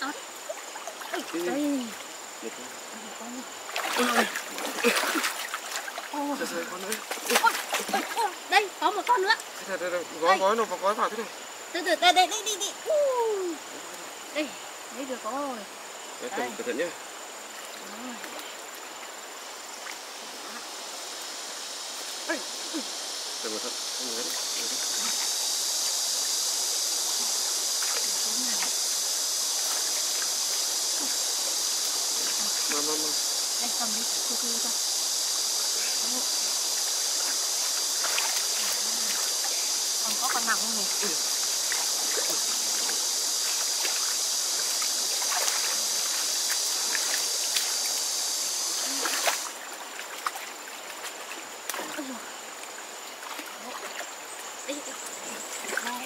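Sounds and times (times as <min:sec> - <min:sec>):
high insect drone: 0:00.0 - 0:56.0
stream running over stones: 0:00.0 - 0:56.0
hands splashing in water: 0:03.7 - 0:06.1, 0:06.8 - 0:08.2, 0:37.9 - 0:39.4, 0:41.7 - 0:48.0, 0:48.8 - 0:52.1.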